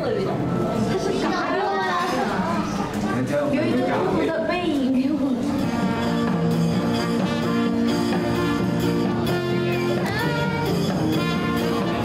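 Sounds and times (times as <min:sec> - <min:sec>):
music with held notes: 0:05.2 - 0:12.0.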